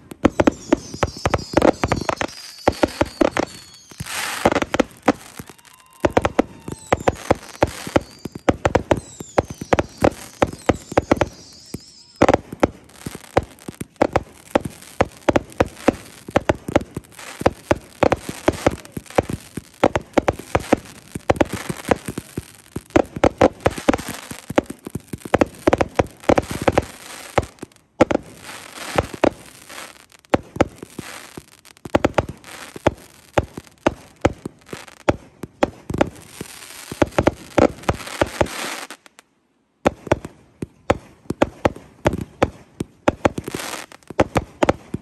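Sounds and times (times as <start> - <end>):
fireworks whistles: 0.0 - 39.0
fireworks bangs and crackling: 0.0 - 39.2, 39.8 - 45.0.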